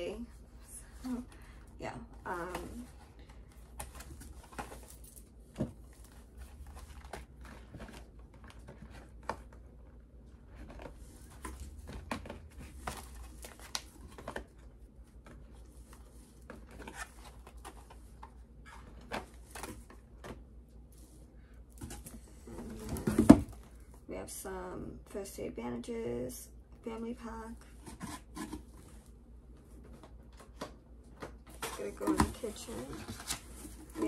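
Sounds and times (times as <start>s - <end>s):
low steady hum: 0.0s - 34.0s
cardboard boxes being handled: 31.5s - 34.0s.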